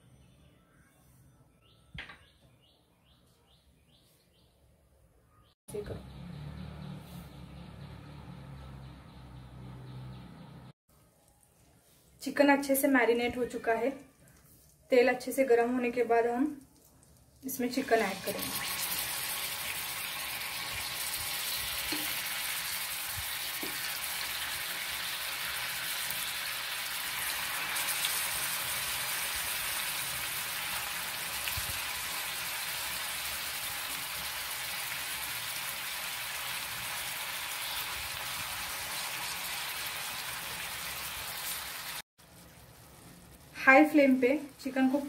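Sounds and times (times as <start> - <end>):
chicken sizzling in a frying pan: 17.5 - 45.0.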